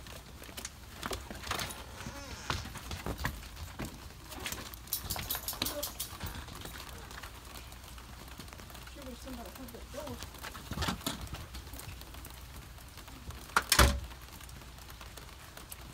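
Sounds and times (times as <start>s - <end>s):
footsteps: 0.0s - 8.4s
storm door opening and closing: 13.6s - 14.1s.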